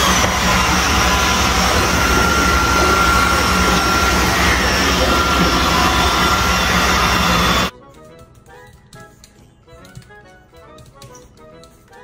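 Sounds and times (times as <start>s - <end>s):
robot vacuum cleaner whirring: 0.0s - 7.7s.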